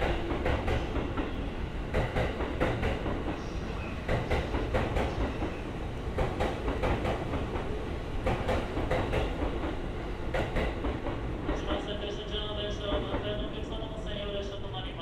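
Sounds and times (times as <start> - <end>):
train wheels clicking over rail joints: 0.0 - 11.8
low train rumble: 0.0 - 15.0.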